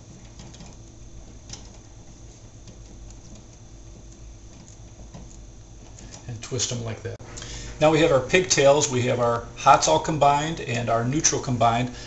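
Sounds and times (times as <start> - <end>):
wires clicking as twisted: 0.0 - 6.9
low steady hum: 0.0 - 12.0.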